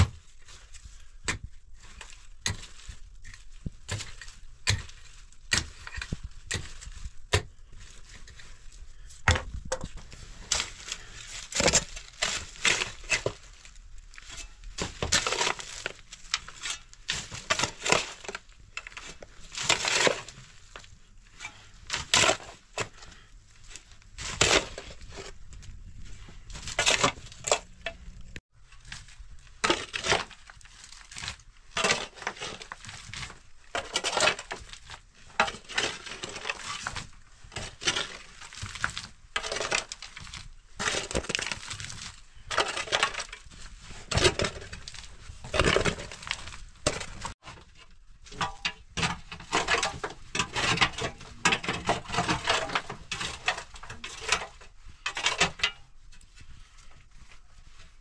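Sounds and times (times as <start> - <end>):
pick striking stony dirt: 1.2 - 8.4.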